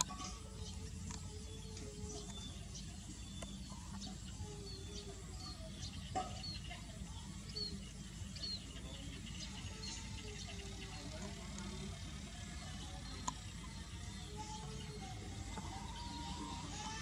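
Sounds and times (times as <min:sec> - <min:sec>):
bird clucking or warbling: 0:00.0 - 0:12.3.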